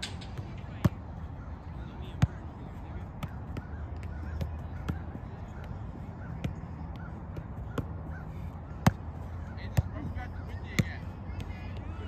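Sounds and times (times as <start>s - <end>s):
birds calling: 1.1s - 10.7s.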